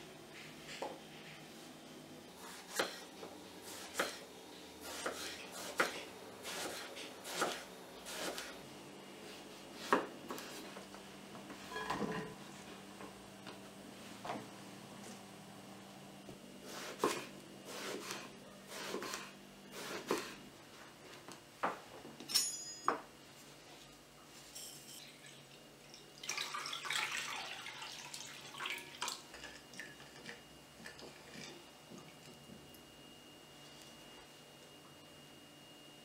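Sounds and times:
water splashing into bowl: 0:25.9 - 0:29.2.

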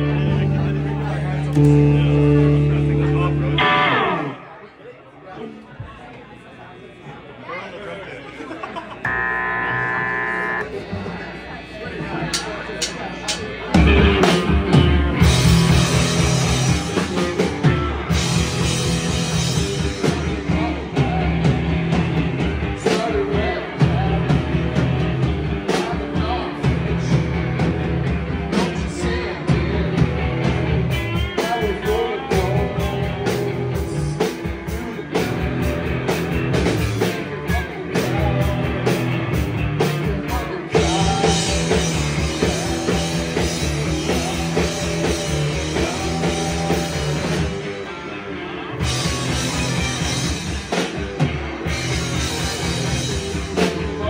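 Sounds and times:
rock band playing live: 0:00.0 - 0:04.6, 0:09.1 - 0:54.0
person singing: 0:28.5 - 0:35.3, 0:36.9 - 0:39.1, 0:39.8 - 0:47.6.

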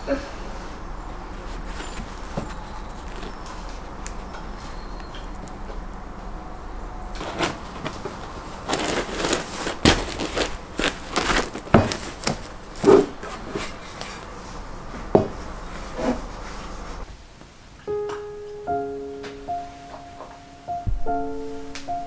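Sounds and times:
bread rolls crackling: 0:00.0 - 0:17.1
linen cloth rustling: 0:00.4 - 0:06.2, 0:07.1 - 0:17.1.

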